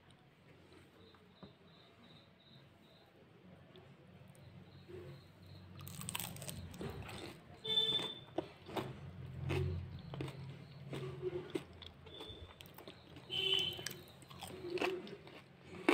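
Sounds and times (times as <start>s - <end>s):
chewing: 5.8s - 15.9s
crispy food crunching: 5.8s - 15.9s.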